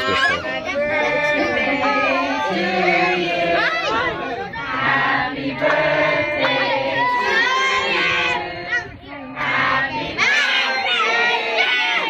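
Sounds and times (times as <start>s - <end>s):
crowd voices calling and talking: 0.0s - 12.0s.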